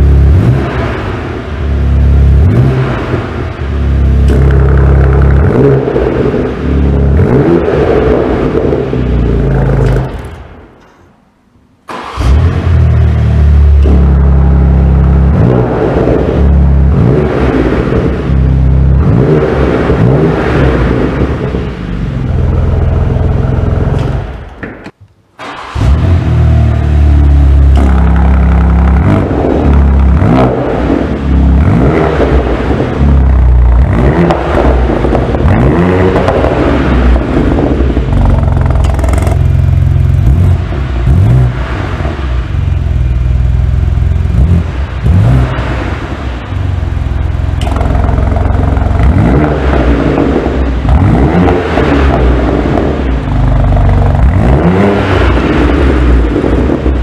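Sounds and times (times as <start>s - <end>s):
car engine revving: 0.0s - 10.8s, 11.8s - 24.8s, 25.4s - 57.0s
deep low exhaust rumble: 12.2s - 24.6s, 25.8s - 57.0s.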